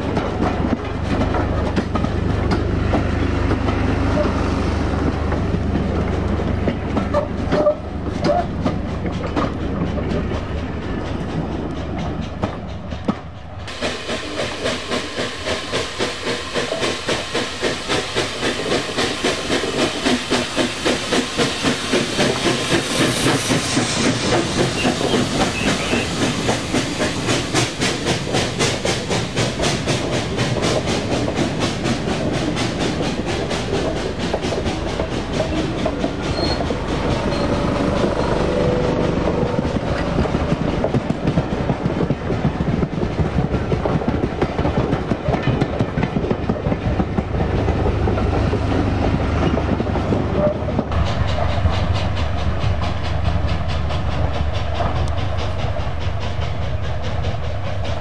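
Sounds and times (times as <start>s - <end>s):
steam locomotive rhythmic beat: 0.0s - 58.0s
train wheels clattering on rail joints: 0.0s - 58.0s.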